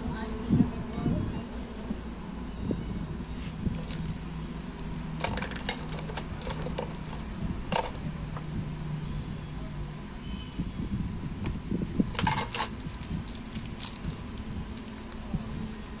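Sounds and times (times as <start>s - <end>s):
metal parts clinking on table: 3.8s - 8.1s, 12.1s - 14.1s.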